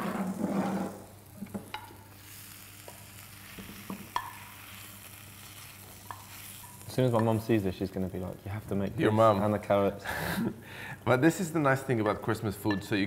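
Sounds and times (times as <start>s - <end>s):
food sizzling in a frying pan: 0.0s - 9.9s.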